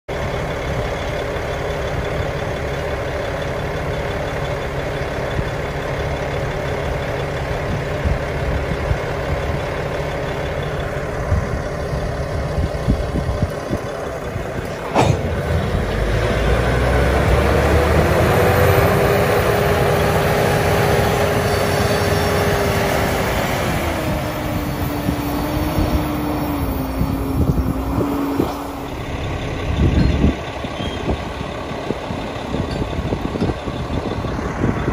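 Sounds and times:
diesel engine working: 0:00.1 - 0:34.9
sharp knock: 0:14.8 - 0:15.5.

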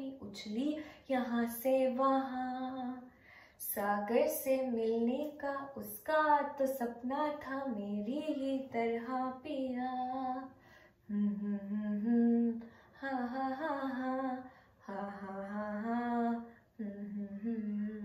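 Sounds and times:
woman humming: 0:16.8 - 0:18.0.

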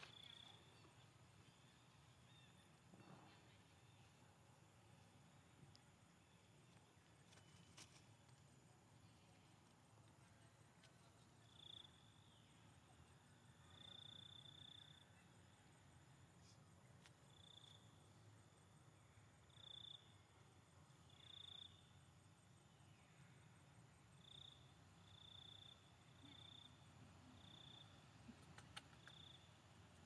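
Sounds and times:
faint low hum: 0:00.0 - 0:30.0
cricket trilling: 0:13.6 - 0:15.6, 0:21.0 - 0:22.9, 0:23.6 - 0:28.2, 0:28.8 - 0:30.0.

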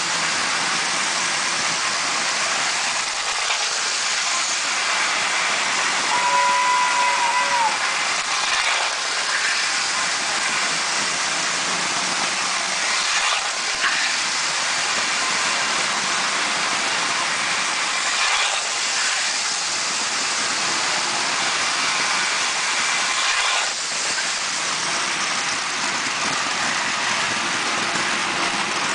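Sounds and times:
toy train rattling on rails: 0:00.0 - 0:28.9.

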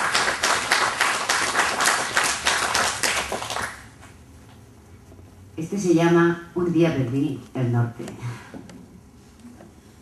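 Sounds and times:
audience applauding: 0:00.0 - 0:03.9.

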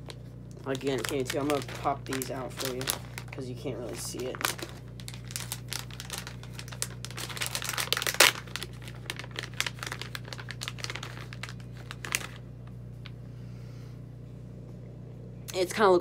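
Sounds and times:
plastic bag crinkling: 0:00.0 - 0:12.7.

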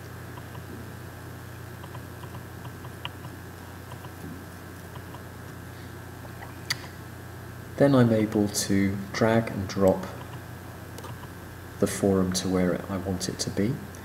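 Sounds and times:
room background hum and hiss: 0:00.0 - 0:14.0
computer mouse click: 0:01.8 - 0:04.2.

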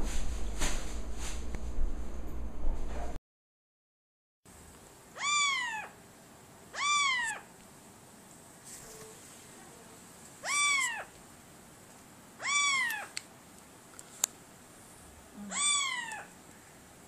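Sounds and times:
cat meowing: 0:05.2 - 0:06.0, 0:06.7 - 0:07.5, 0:10.4 - 0:11.1, 0:12.4 - 0:13.2, 0:15.4 - 0:16.3.

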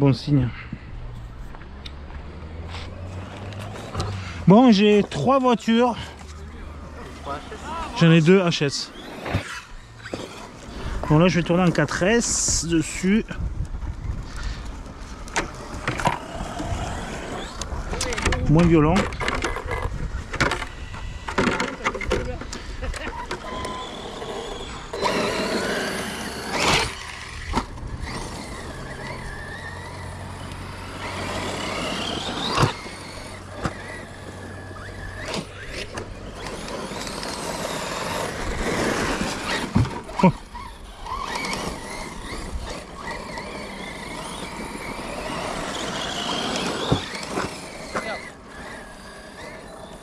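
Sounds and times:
electric motor whine: 0:13.6 - 0:50.0.

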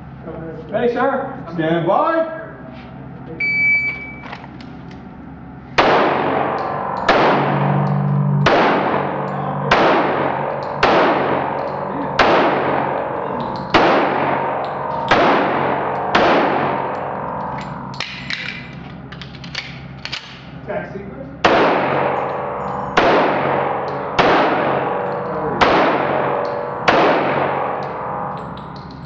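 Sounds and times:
echoing pistol shots: 0:05.8 - 0:18.4, 0:21.4 - 0:28.4.

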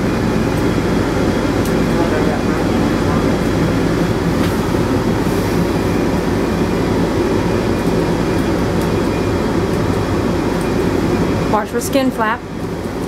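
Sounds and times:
low rumble with hum: 0:00.0 - 0:13.0.

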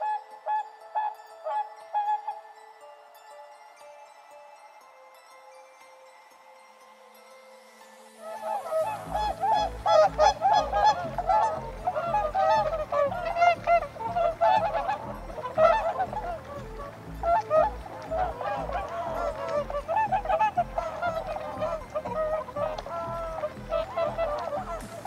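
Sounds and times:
geese honking: 0:08.2 - 0:25.0.

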